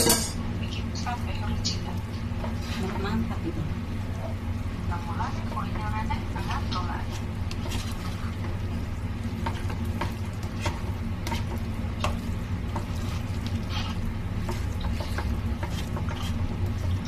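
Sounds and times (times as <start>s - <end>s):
steady low hum: 0.0s - 17.0s
spatula scraping a pan: 2.3s - 3.2s, 5.5s - 17.0s
batter sizzling in a pan: 4.8s - 17.0s.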